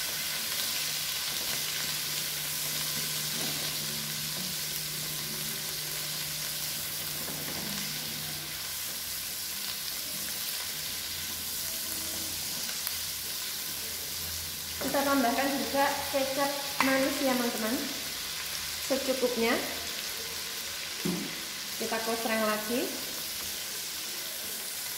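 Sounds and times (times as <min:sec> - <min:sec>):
paste sizzling in oil: 0:00.0 - 0:24.9.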